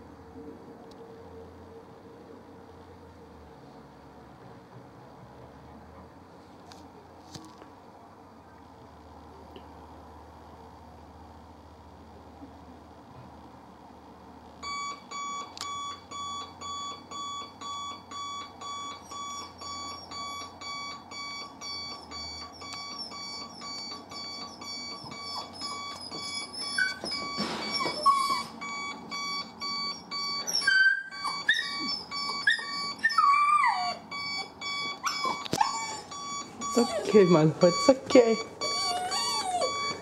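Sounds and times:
alarm clock beeping: 14.6 - 40.0
dog whining and whimpering: 18.1 - 40.0.

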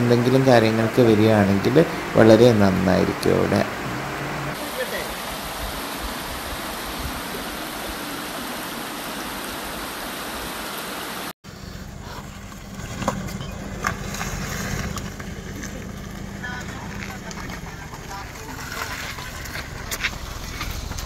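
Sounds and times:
low hum: 0.0 - 4.6, 11.5 - 21.0
water flowing over rocks: 0.2 - 11.3, 13.8 - 21.0.

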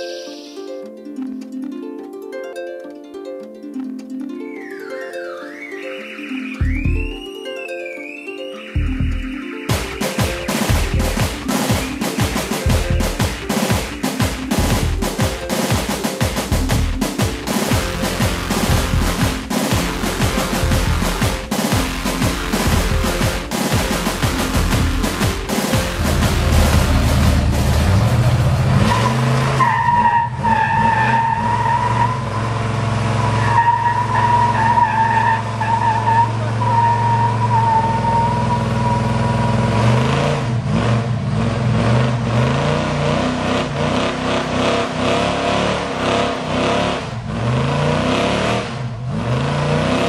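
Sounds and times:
car engine revving: 17.7 - 50.0
tyres squealing: 33.2 - 39.1.

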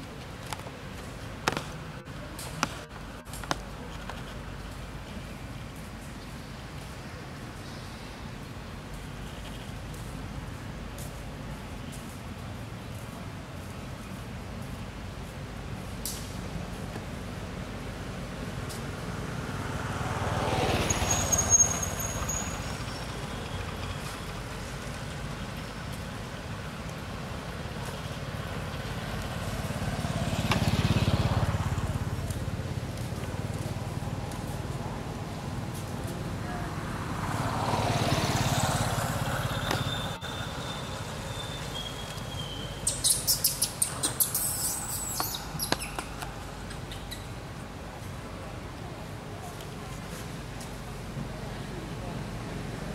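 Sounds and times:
motor vehicle passing: 17.8 - 47.4
thin high squeal: 20.9 - 22.8
high sharp bird chirps: 39.6 - 46.2.

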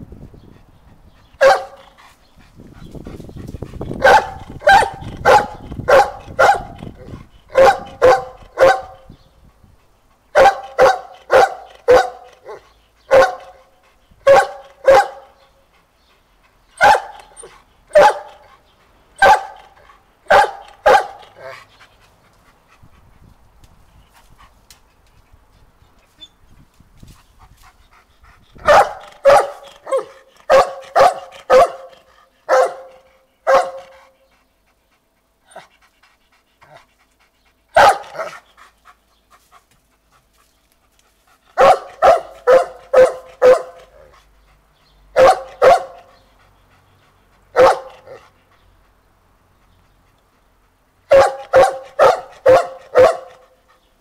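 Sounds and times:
dog barking: 1.4 - 1.8, 4.0 - 6.8, 7.5 - 9.0, 10.4 - 13.6, 14.3 - 15.4, 16.8 - 17.3, 17.9 - 18.4, 19.2 - 21.2, 28.6 - 31.9, 32.5 - 33.9, 37.8 - 38.4, 41.6 - 43.8, 45.2 - 46.1, 47.6 - 48.2, 51.1 - 53.5.

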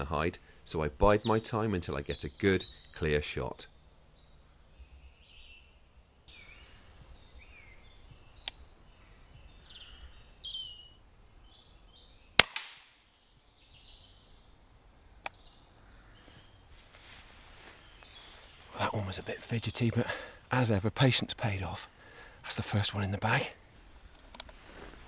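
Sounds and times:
songbirds chirping: 0.0 - 25.0
air rifle firing crack: 12.4 - 13.0
faint clicks: 24.1 - 24.6.

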